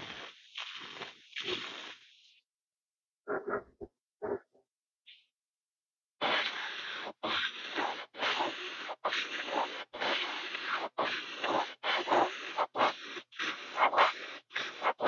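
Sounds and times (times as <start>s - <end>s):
airbrush hissing: 6.2s - 15.0s.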